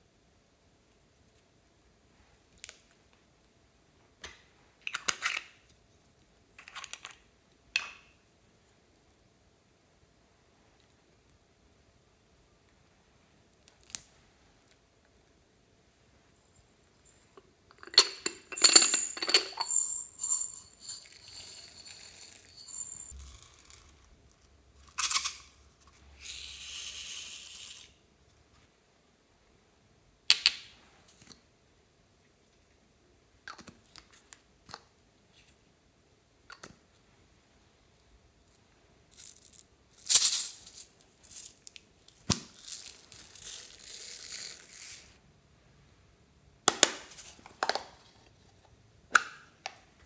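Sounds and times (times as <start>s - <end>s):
beads rattling and clinking: 16.4s - 24.0s, 39.1s - 41.8s, 42.5s - 45.2s.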